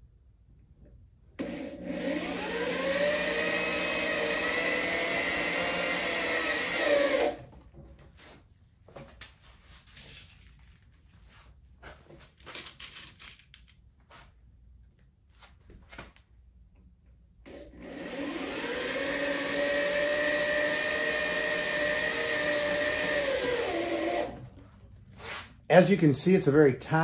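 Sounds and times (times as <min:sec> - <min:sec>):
power drill driving screw: 0:01.4 - 0:07.5, 0:17.5 - 0:24.4.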